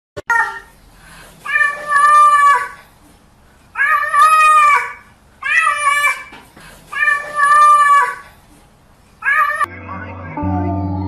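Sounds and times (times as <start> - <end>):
cat meowing loudly: 9.2 - 9.7.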